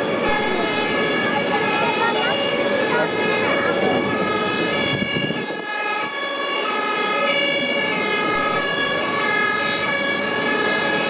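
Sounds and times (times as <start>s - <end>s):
two-tone sirens: 0.0s - 11.0s.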